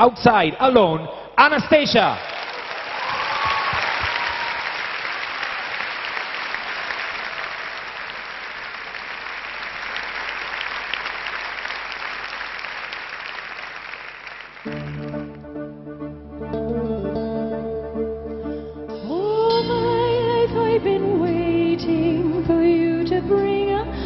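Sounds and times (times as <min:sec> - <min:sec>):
audience applauding: 0:01.8 - 0:15.5.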